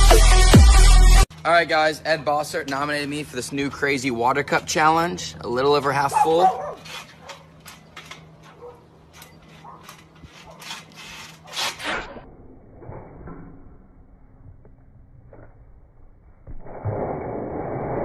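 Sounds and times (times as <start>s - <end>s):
trampoline springs creaking: 5.7s - 14.2s.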